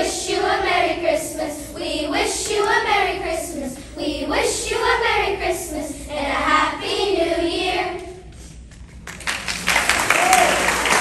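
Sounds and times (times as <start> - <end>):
children's choir singing: 0.0 - 8.3
applause: 9.0 - 11.0.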